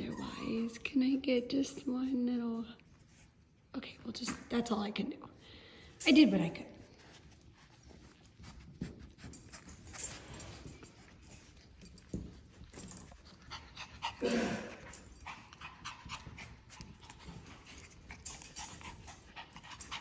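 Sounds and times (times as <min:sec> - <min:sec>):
puppies panting: 0:07.0 - 0:20.0.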